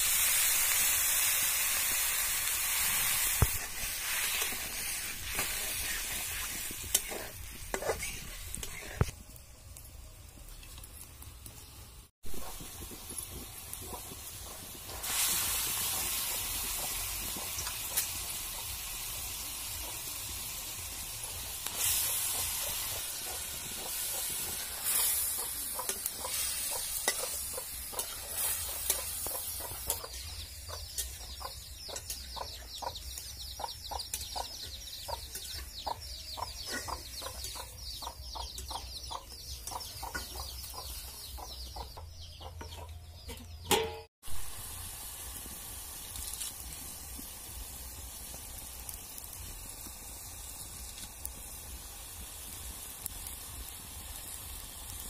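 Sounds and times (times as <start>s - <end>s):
chicken sizzling in hot oil: 0.0s - 41.8s, 44.2s - 55.0s
metal spatula scraping a wok: 2.8s - 9.1s, 21.7s - 30.2s
metal lid clanking onto wok: 43.6s - 44.1s.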